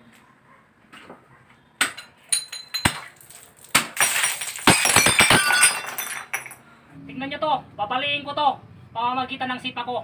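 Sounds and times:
glass clattering: 0:01.8 - 0:06.6.

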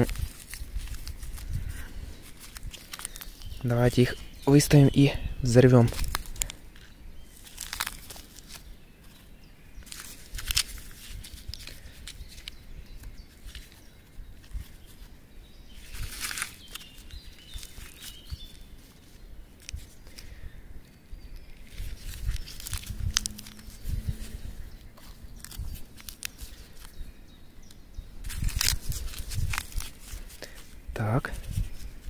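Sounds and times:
rustling and handling noises: 0:00.0 - 0:32.0
sharp crinkles: 0:00.0 - 0:32.0.

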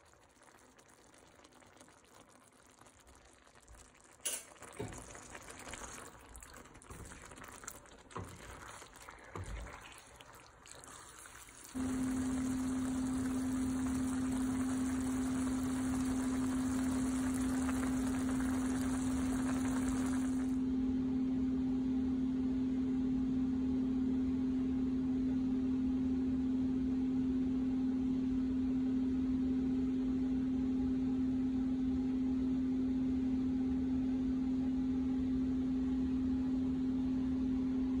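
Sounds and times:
low-pitched hum with hiss: 0:00.0 - 0:38.0.

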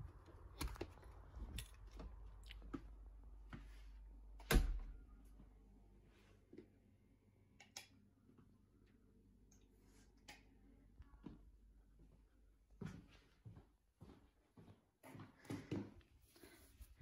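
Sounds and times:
door shutting thud: 0:04.4 - 0:05.0.

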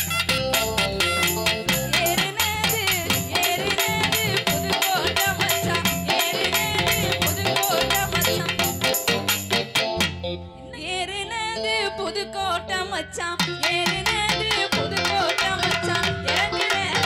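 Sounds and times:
fast percussion beat: 0:00.0 - 0:10.2, 0:13.4 - 0:17.0
folk band melody: 0:00.0 - 0:10.5.

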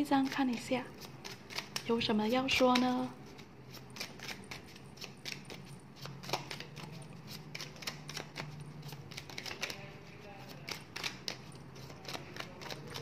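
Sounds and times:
cards being shuffled: 0:00.0 - 0:13.0.

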